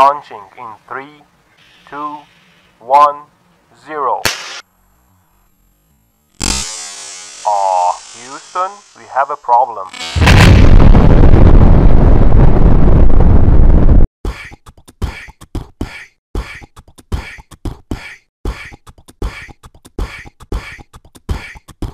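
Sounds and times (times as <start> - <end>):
explosion rumble: 10.0 - 14.1
beatboxed rhythm: 14.2 - 21.9.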